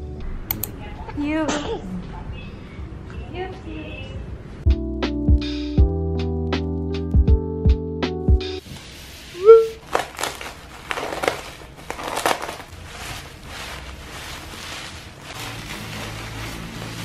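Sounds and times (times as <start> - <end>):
bubble wrap crinkling: 8.6 - 17.0.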